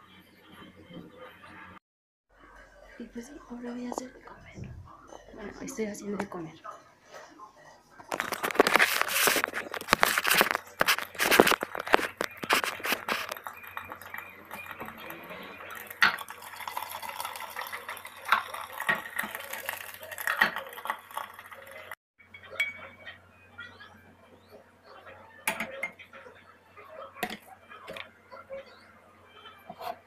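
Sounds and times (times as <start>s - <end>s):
cutlery clinking on plate: 25.5s - 26.0s.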